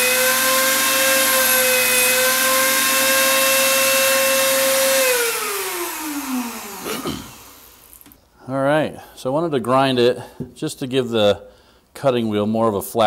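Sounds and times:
rotary tool winding down: 0:00.0 - 0:08.1
rotary tool high whine: 0:00.0 - 0:08.2.

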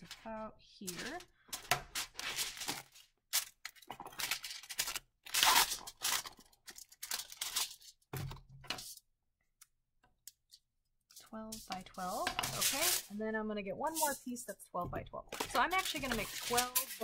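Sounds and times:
aluminium foil crinkling and tearing: 0:00.9 - 0:08.1, 0:11.1 - 0:13.2, 0:15.4 - 0:17.0.

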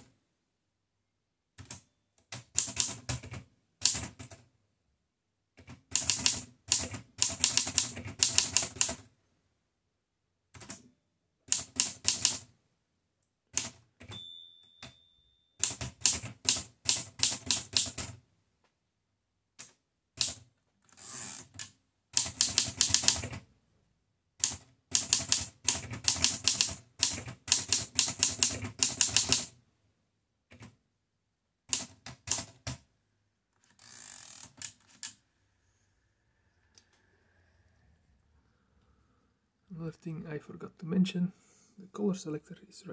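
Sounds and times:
typewriter bell ringing: 0:14.1 - 0:15.8.

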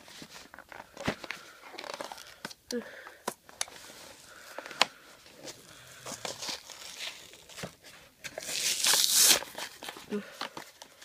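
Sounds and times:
plastic blister pack crinkling and tearing: 0:00.4 - 0:02.6, 0:04.3 - 0:11.0.

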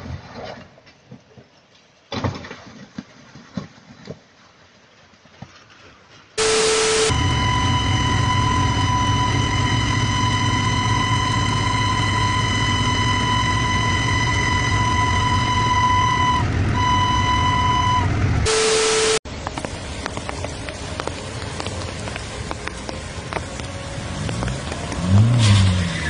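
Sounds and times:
train rumbling: 0:07.1 - 0:18.5, 0:19.3 - 0:26.0.

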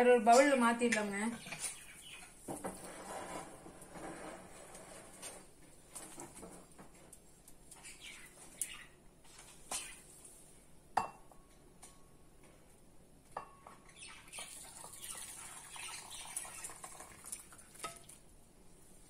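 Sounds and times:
liquid pouring into bowl: 0:14.4 - 0:18.2.

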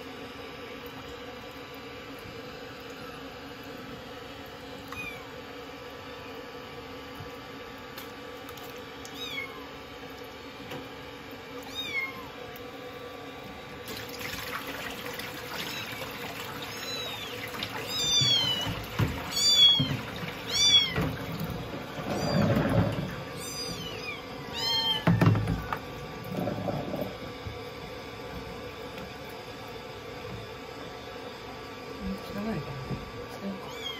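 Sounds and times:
water sloshing in a washbasin: 0:00.0 - 0:33.9
kitten mewing: 0:11.6 - 0:12.3, 0:33.6 - 0:33.9.

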